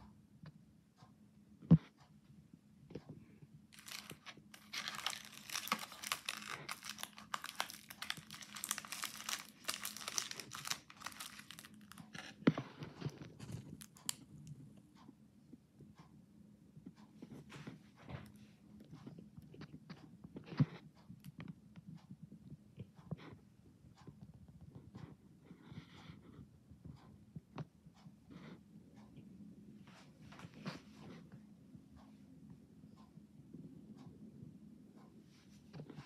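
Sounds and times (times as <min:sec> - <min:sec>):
plastic packaging crinkling: 0:03.8 - 0:12.4, 0:13.0 - 0:14.2.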